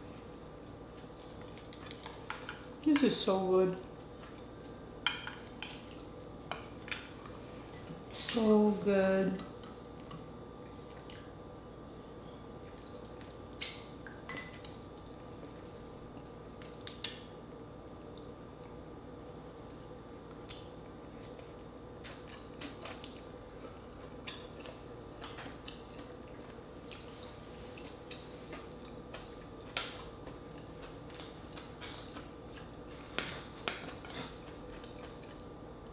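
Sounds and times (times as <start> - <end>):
wet mouth eating sounds: 9.5 - 11.4, 12.6 - 14.3.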